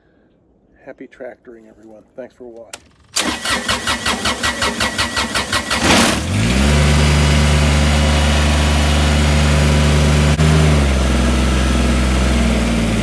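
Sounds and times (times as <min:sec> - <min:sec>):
tractor diesel engine idling: 0:06.8 - 0:13.0.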